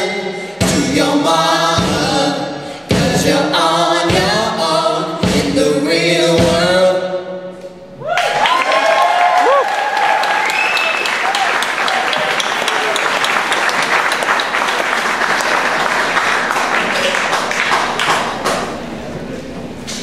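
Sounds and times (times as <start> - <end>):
audience applause: 8.1 - 18.7.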